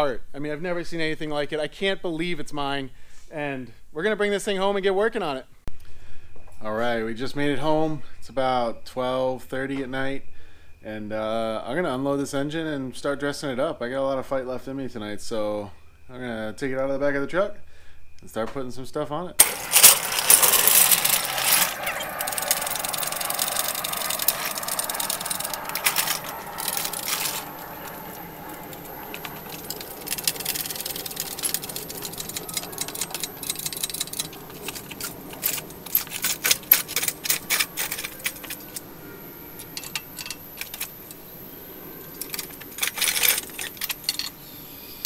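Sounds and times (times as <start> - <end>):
engine hoist clicking and rattling: 19.4 - 38.8, 39.6 - 41.2, 42.2 - 44.4
metal scraping: 19.4 - 38.9.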